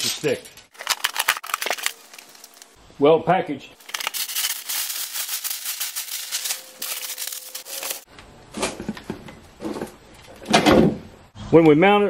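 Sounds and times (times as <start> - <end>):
packing paper crackling: 0.7 - 2.8, 3.8 - 8.1.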